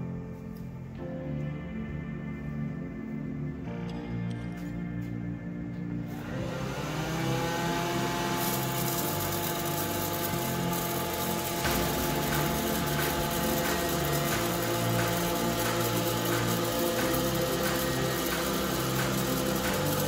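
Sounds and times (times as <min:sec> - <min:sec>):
popcorn popper fan motor whine: 0:06.1 - 0:20.0.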